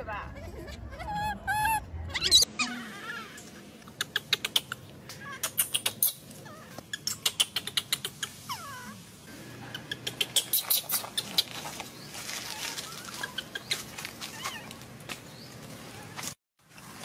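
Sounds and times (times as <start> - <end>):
young monkey calling: 0.7 - 9.0, 9.6 - 11.6, 12.3 - 14.8.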